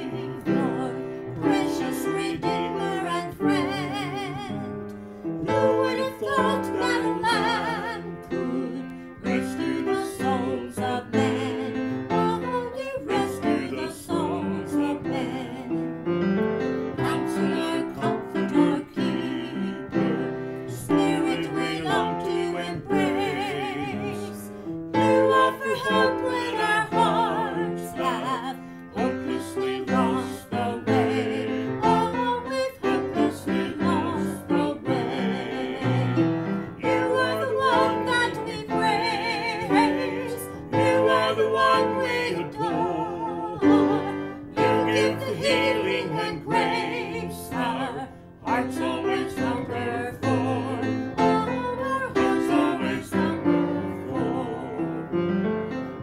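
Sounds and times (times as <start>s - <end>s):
woman and man singing: 0.0s - 4.8s, 5.4s - 15.8s, 17.0s - 55.1s
piano accompaniment: 0.0s - 56.0s.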